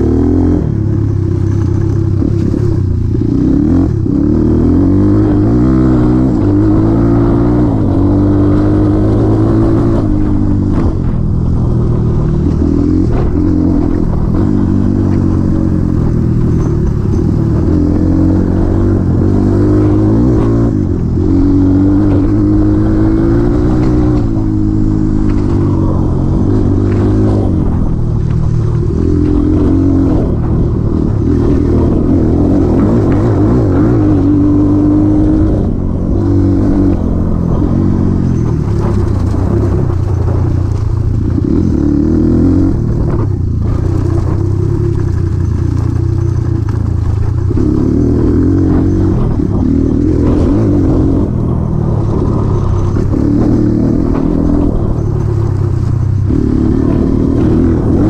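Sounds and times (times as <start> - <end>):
motorcycle engine revving: 0.0 - 58.0
sharp knocks and rattles: 10.2 - 18.2.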